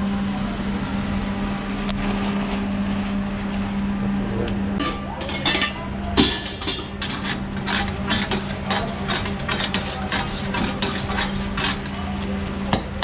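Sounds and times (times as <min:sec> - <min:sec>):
steady motor hum: 0:00.0 - 0:13.0.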